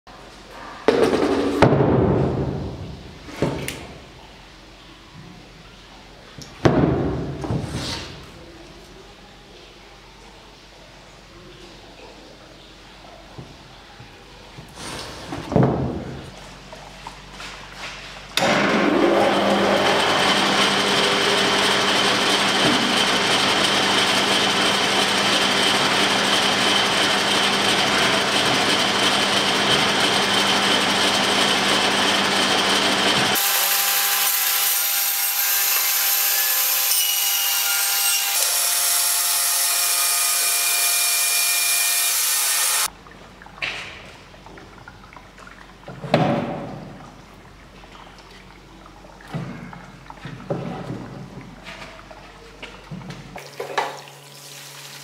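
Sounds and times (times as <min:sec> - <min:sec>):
bandsaw cutting wood: 0:18.4 - 0:42.9.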